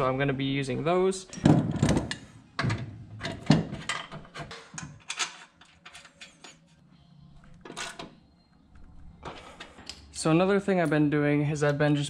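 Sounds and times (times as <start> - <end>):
parts clattering: 1.2 - 6.8.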